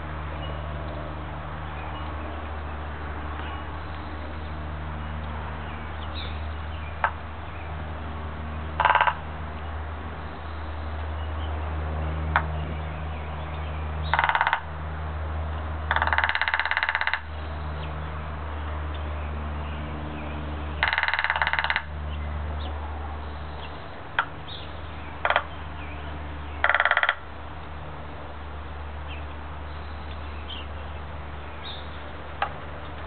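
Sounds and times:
woodpecker drumming: 8.8s - 9.2s, 14.0s - 14.7s, 15.9s - 17.4s, 20.8s - 21.9s, 24.2s - 24.4s, 25.2s - 25.6s, 26.6s - 27.3s.

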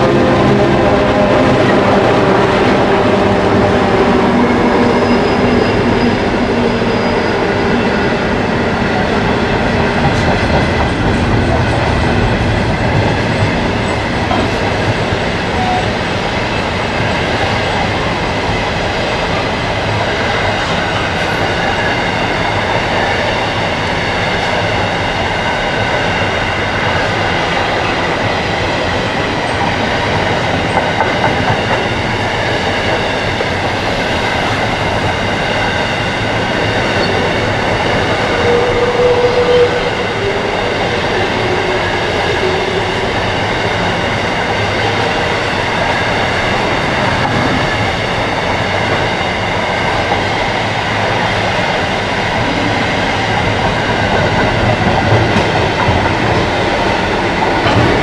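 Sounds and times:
diesel locomotive engines: 0.0s - 58.0s
high squeal of wheels: 4.7s - 8.0s.

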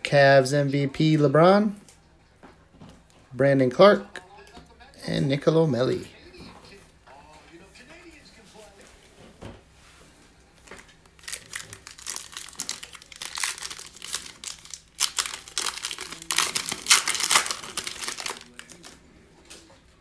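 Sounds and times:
foil wrapper crinkling: 10.6s - 19.0s.

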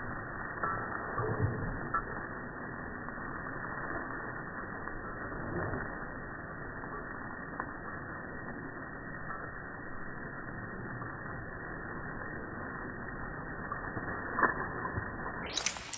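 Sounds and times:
water spraying from garden hose: 15.2s - 15.9s.

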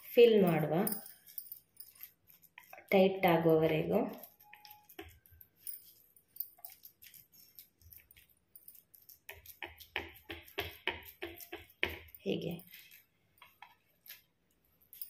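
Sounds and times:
hands clicking and tapping food: 6.7s - 12.3s.

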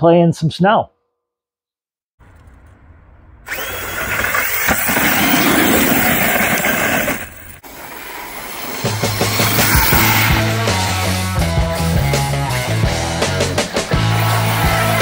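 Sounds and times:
tyres tearing across loose dirt: 3.5s - 10.9s
electric motor whining: 3.5s - 11.9s, 12.5s - 15.0s.

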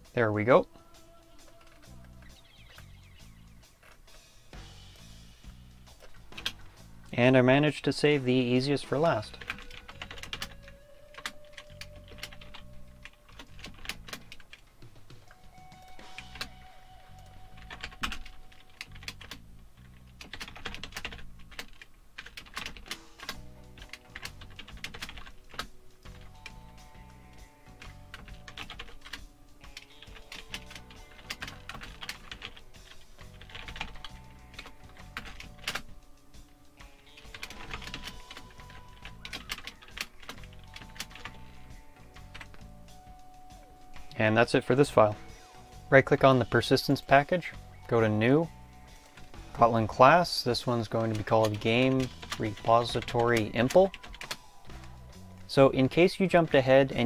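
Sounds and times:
quiet background music: 0.0s - 57.0s
keyboard typing: 9.0s - 27.1s, 27.7s - 36.0s, 37.1s - 42.7s, 50.9s - 56.4s.

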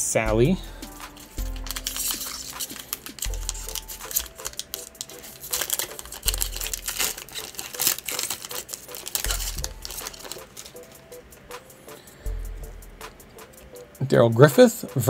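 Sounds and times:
foil wrapper crinkling and tearing: 1.1s - 11.0s.

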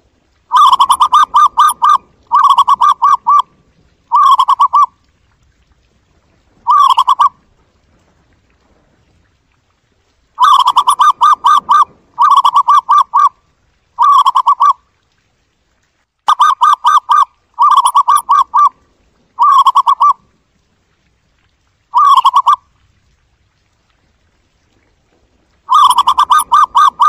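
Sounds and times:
dove cooing: 0.5s - 3.5s, 4.1s - 4.9s, 6.6s - 7.4s, 10.4s - 13.3s, 14.0s - 14.8s, 16.3s - 18.8s, 19.4s - 20.2s, 22.0s - 22.6s, 25.7s - 27.0s.

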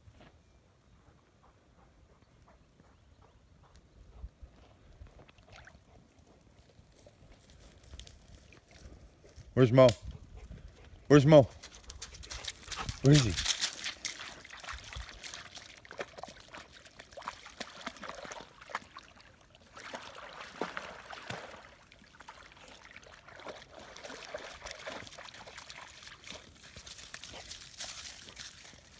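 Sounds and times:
dog splashing in shallow water: 5.2s - 6.2s, 11.6s - 28.9s.

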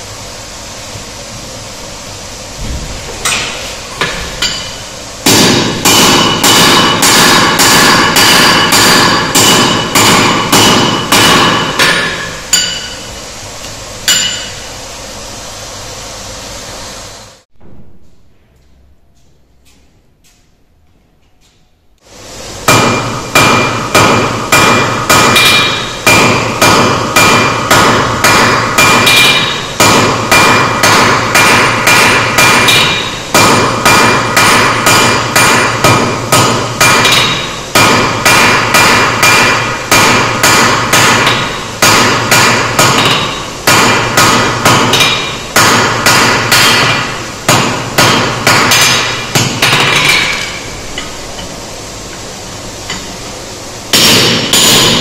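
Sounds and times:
hammer striking metal on anvil: 3.2s - 13.1s, 14.0s - 14.7s, 22.7s - 51.5s, 53.9s - 55.0s.

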